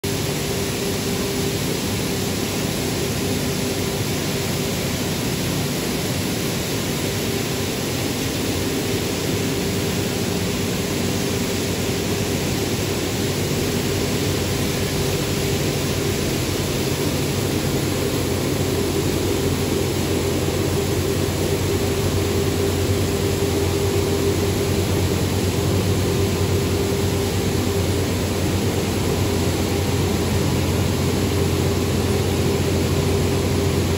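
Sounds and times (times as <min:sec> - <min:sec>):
constant low hum: 0:00.0 - 0:33.9.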